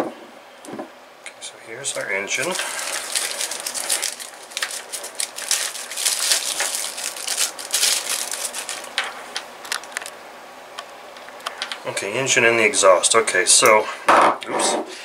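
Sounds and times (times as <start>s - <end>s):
plastic bag crinkling: 1.8s - 10.2s.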